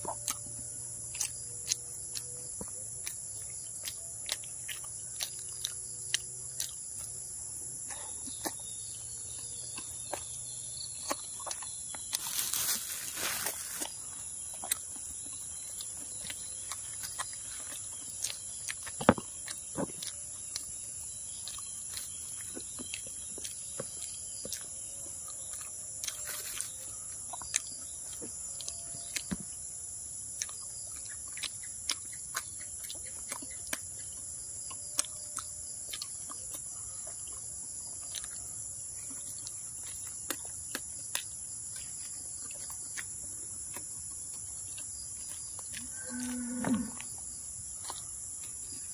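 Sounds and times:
high-pitched insect chorus: 0:00.0 - 0:48.9
person eating close to microphone: 0:00.0 - 0:48.9
plastic bag crackling: 0:12.2 - 0:13.9.

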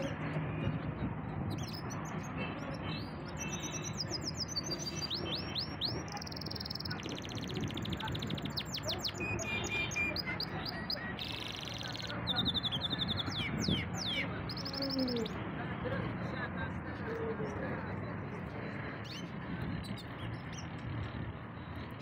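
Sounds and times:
canary singing: 0:01.5 - 0:15.4.

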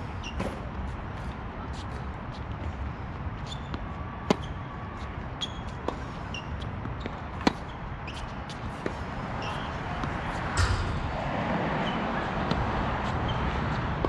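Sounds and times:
steady background noise: 0:00.0 - 0:14.0
racket hitting tennis ball: 0:10.0 - 0:13.2.

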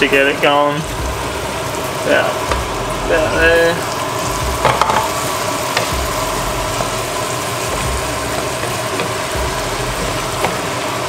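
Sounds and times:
curry sizzling in a frying pan: 0:00.0 - 0:11.0
wooden spatula tapping and scraping: 0:04.6 - 0:06.2, 0:07.7 - 0:10.9.

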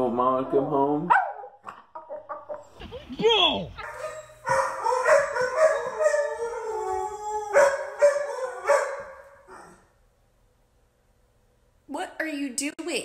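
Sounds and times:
husky howling: 0:04.6 - 0:09.9.

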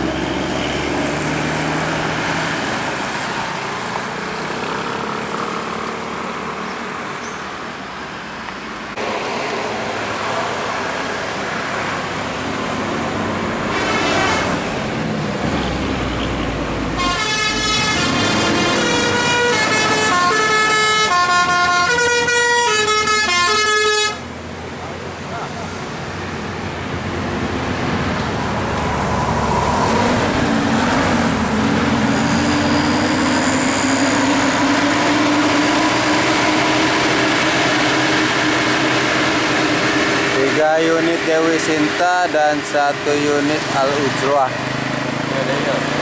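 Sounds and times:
bus engines and tyre noise: 0:00.0 - 0:46.0
musical air horn melody: 0:17.0 - 0:24.2
rising siren-like glide: 0:28.5 - 0:37.4.

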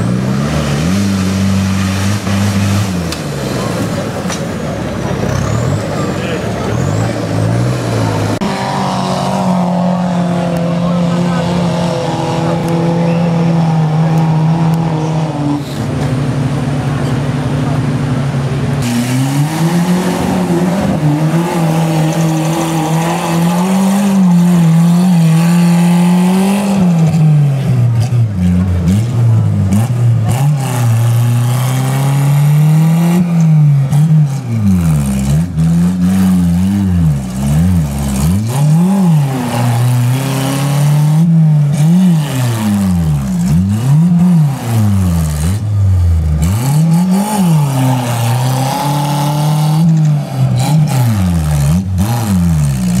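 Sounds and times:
off-road engine revving under load: 0:00.0 - 0:53.0.

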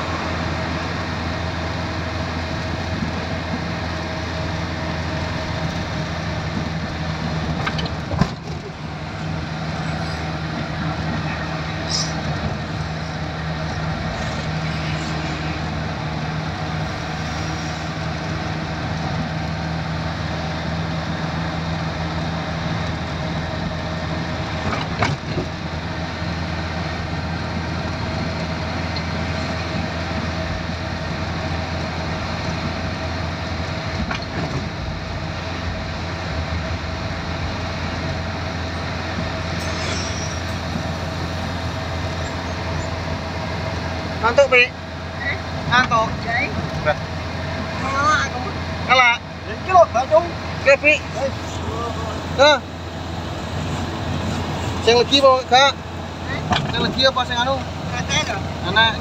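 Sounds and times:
vehicle engine and tyre drone: 0:00.0 - 0:59.0.

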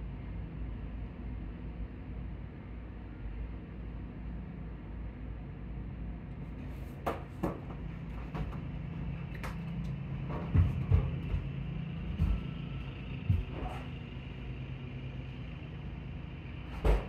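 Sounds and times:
muffled engine drone: 0:00.0 - 0:17.0
sharp knocks and clicks: 0:09.3 - 0:13.6.

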